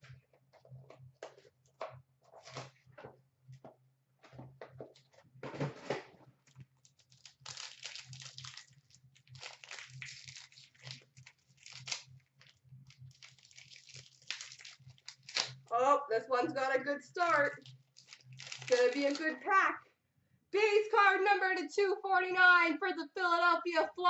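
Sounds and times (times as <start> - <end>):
wrapper crinkling and tearing: 6.8 - 15.7, 17.3 - 19.4.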